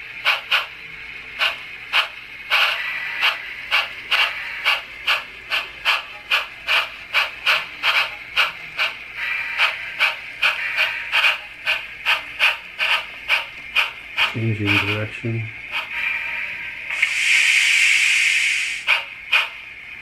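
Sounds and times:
model locomotive exhaust chuffs: 0.0s - 20.0s
steam hiss: 15.8s - 19.6s.

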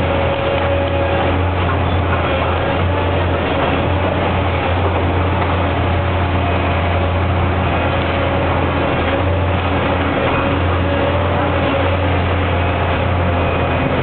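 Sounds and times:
diesel engine droning: 0.0s - 14.0s.

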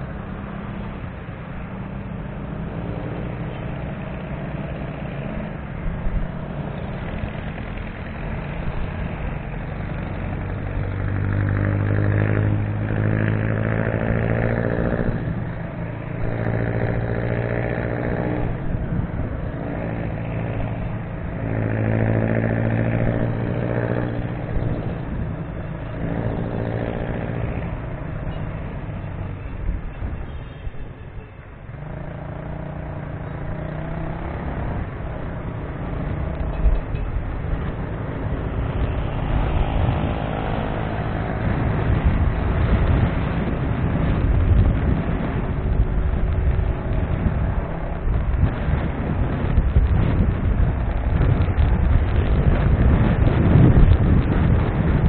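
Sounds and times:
wind and road noise: 0.0s - 55.0s
motorcycle engine running: 31.8s - 55.0s.

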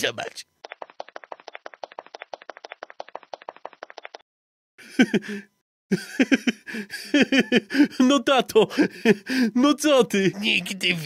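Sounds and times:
rapid sharp clicks: 0.6s - 4.2s.

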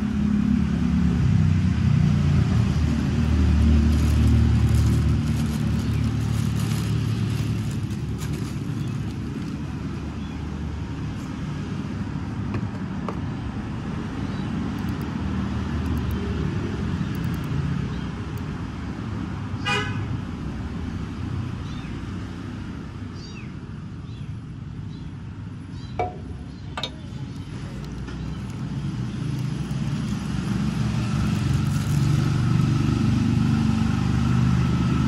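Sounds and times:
road traffic rumble: 0.0s - 35.0s
sharp clicks: 14.7s - 15.2s, 15.8s - 16.3s, 17.1s - 17.6s.

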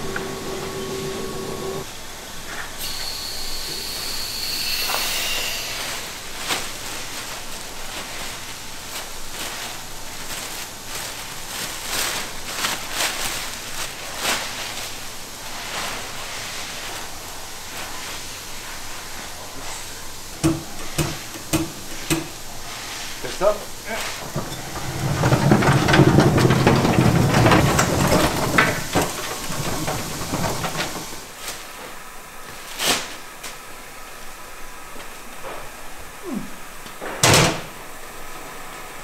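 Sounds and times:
plastic sheeting rustling: 5.7s - 34.2s.

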